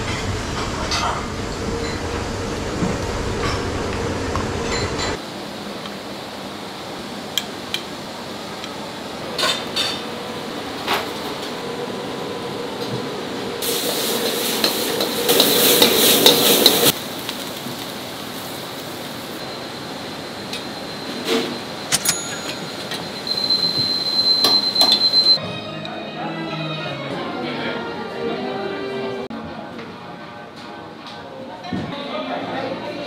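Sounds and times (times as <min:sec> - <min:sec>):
utensils clinking on pots: 0:13.6 - 0:16.9, 0:21.9 - 0:25.4
food sizzling in a pan: 0:13.6 - 0:21.2.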